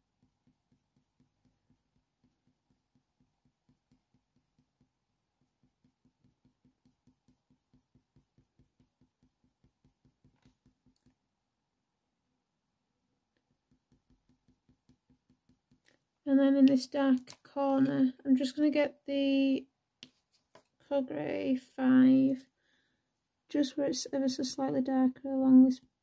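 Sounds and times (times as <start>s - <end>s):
pencil scratching on paper: 0.0s - 11.1s, 13.4s - 16.0s.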